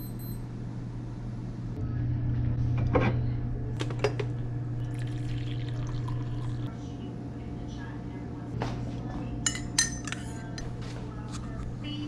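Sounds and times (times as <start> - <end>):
steady low hum: 0.0 - 12.0
coffee pouring into a mug: 4.8 - 6.7.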